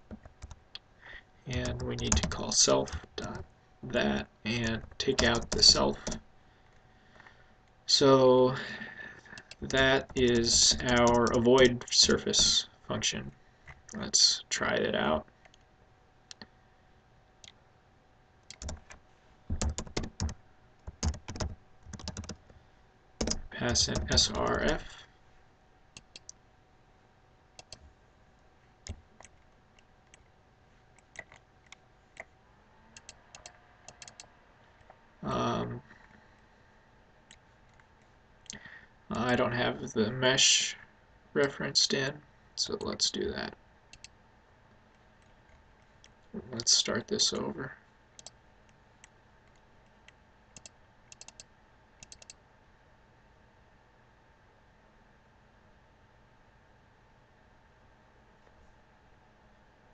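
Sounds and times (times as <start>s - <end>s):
faint room hiss: 0.0s - 59.9s
computer mouse clicks: 9.3s - 11.7s, 18.4s - 22.5s, 23.2s - 24.6s, 26.0s - 26.4s, 27.6s - 27.8s, 31.0s - 32.3s, 32.9s - 35.0s, 43.9s - 44.2s, 48.2s - 48.4s, 49.0s - 52.4s.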